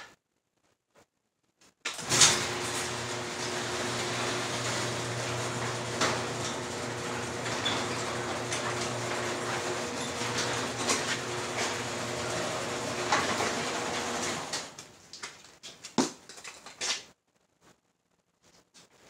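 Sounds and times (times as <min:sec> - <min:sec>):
garage door clatter: 0:01.9 - 0:14.8
garage door opener motor hum: 0:02.0 - 0:14.8
knocks and footsteps: 0:14.5 - 0:19.0.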